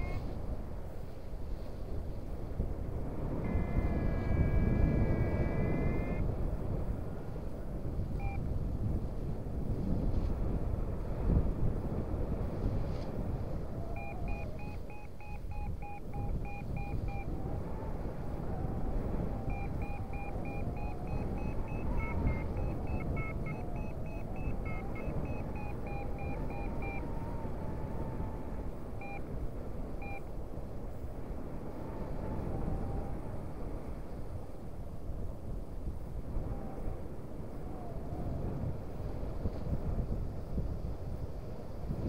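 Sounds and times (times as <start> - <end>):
variometer beeping: 0.0 - 0.2, 3.4 - 6.2, 8.2 - 8.4, 13.8 - 29.3, 29.9 - 30.2
wind on microphone: 0.0 - 42.0.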